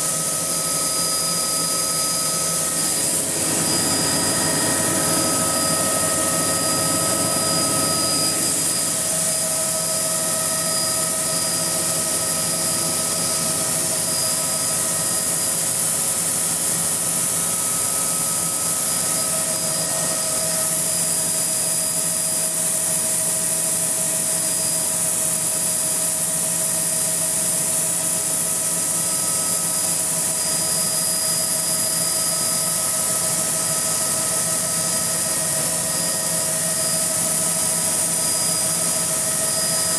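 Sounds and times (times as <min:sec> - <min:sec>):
steady whining tones: 0:00.0 - 0:21.0
helicopter cabin hiss: 0:01.6 - 0:10.3.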